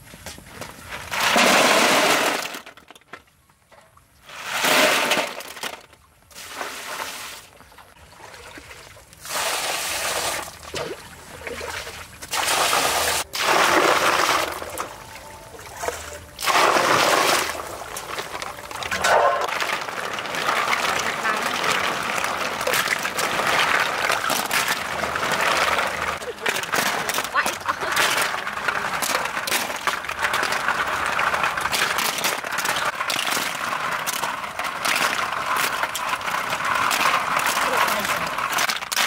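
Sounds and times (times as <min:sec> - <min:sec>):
snail shells clattering in water: 0:04.3 - 0:06.6, 0:12.3 - 0:39.0.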